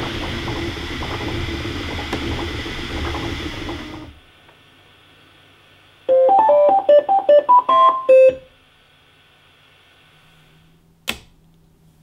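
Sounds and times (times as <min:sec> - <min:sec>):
printer motors and fan running: 0:00.0 - 0:08.1
stepper motors playing a tune: 0:06.1 - 0:08.4.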